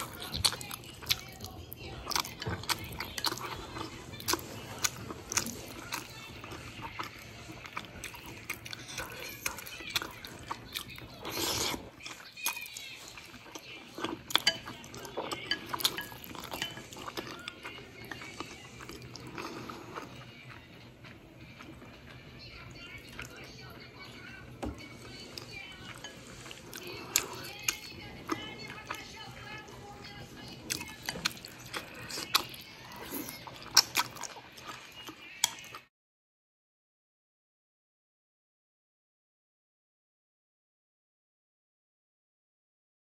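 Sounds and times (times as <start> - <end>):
close-up chewing: 0.0 - 35.9.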